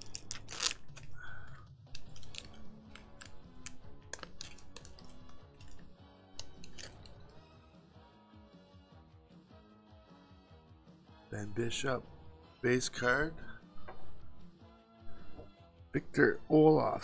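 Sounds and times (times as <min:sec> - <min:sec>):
foil wrapper tearing and crinkling: 0:00.0 - 0:03.4, 0:06.4 - 0:07.2
cards being handled: 0:00.0 - 0:07.4
quiet background music: 0:00.0 - 0:17.0.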